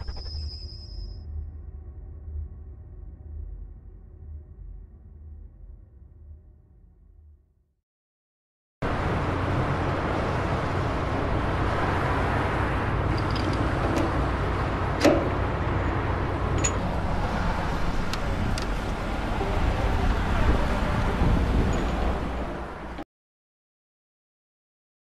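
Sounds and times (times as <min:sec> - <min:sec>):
low rumbling noise: 0:01.2 - 0:07.3.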